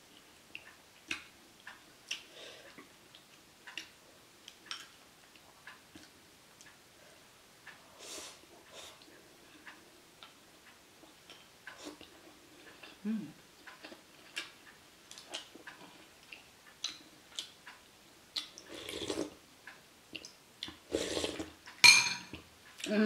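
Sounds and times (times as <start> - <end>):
chopsticks tapping ceramic bowls: 21.8 - 22.4.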